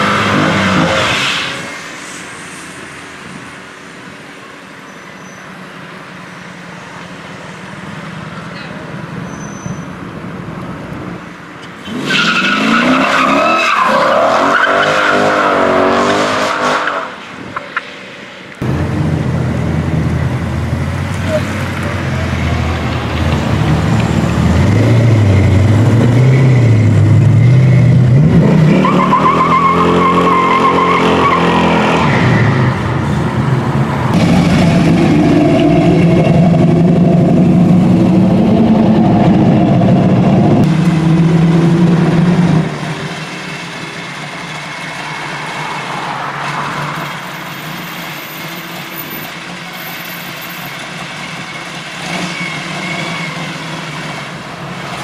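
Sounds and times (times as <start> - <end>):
tires squealing: 0.0 - 3.5, 8.5 - 10.0, 11.7 - 17.8, 21.2 - 33.0, 40.6 - 55.0
car engines revving: 0.0 - 4.8, 5.6 - 55.0.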